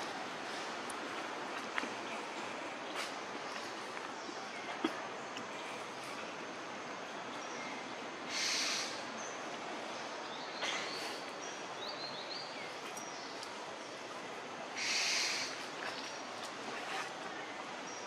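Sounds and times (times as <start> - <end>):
steady outdoor hiss: 0.0 - 18.0
rustling leaves and twigs: 14.8 - 18.0.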